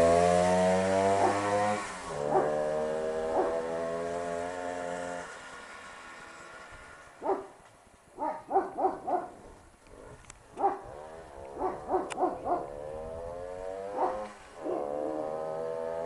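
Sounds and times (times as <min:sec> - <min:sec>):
two-stroke motorcycle engine: 0:00.0 - 0:07.4, 0:10.0 - 0:16.0
dog barking: 0:01.1 - 0:01.6, 0:02.3 - 0:02.6, 0:03.4 - 0:03.6, 0:07.2 - 0:07.6, 0:08.2 - 0:09.5, 0:10.6 - 0:10.9, 0:11.6 - 0:12.7, 0:14.0 - 0:15.0.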